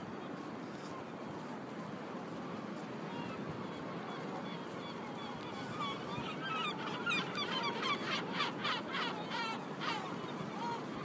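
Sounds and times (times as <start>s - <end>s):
gulls squawking: 3.1s - 11.0s.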